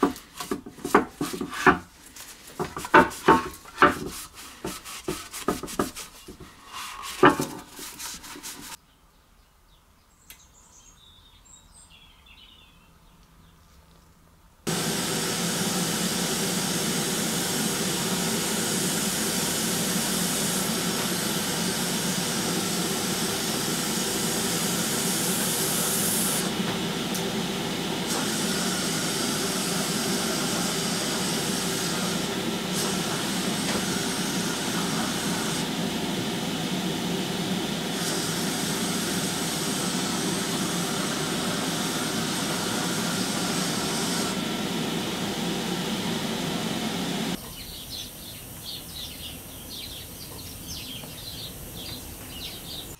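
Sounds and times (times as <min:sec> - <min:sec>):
loud hiss: 0:00.0 - 0:08.8, 0:14.7 - 0:50.0
steady machine noise: 0:14.7 - 0:47.4.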